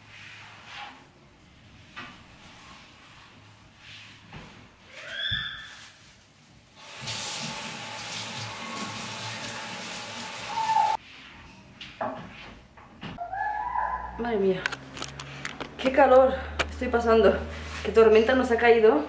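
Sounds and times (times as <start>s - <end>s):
falling water rushing: 6.8s - 11.0s.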